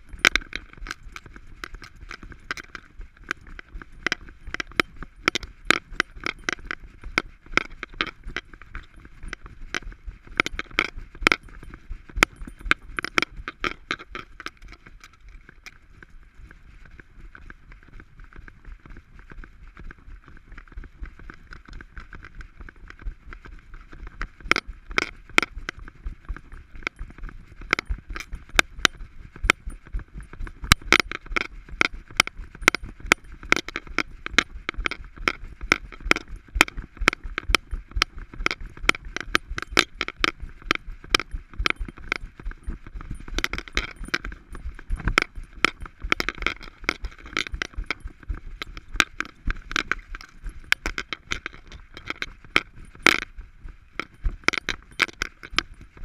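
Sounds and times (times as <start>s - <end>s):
harness clicking and jangling: 0.0s - 15.9s, 32.2s - 53.3s, 54.0s - 55.8s.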